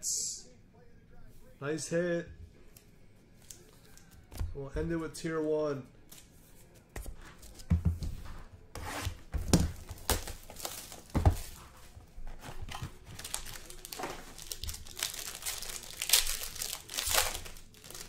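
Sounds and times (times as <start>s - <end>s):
foil wrapper tearing and crinkling: 9.8s - 11.2s, 13.0s - 18.0s.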